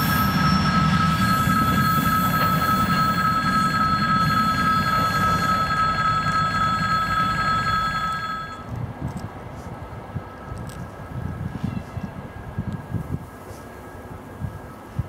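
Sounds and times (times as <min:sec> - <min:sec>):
freight train rumbling past: 0:00.0 - 0:08.7
level-crossing bell ringing: 0:00.0 - 0:08.7
faint wind: 0:00.0 - 0:15.0.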